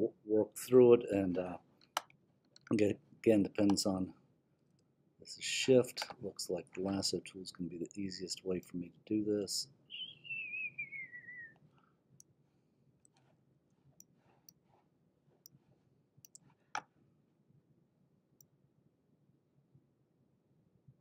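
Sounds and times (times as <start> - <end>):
short falling whistle-like tone: 9.9 - 11.6
computer mouse clicks: 16.2 - 16.8.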